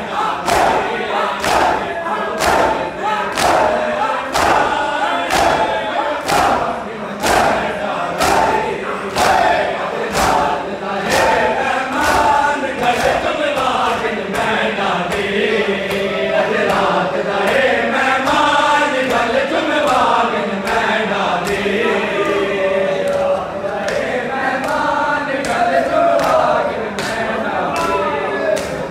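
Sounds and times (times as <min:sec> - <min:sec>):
men chanting a lament: 0:00.0 - 0:28.9
hands slapping chests: 0:00.4 - 0:09.5, 0:10.1 - 0:15.3, 0:27.8 - 0:28.9.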